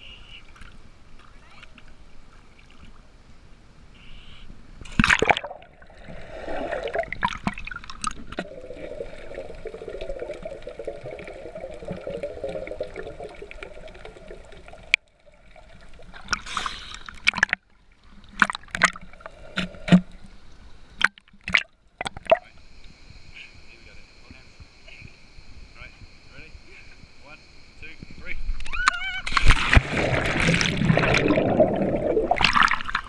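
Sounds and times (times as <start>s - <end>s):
person splashing into water: 4.9s - 13.2s, 29.3s - 33.0s
small splashes: 29.3s - 33.0s.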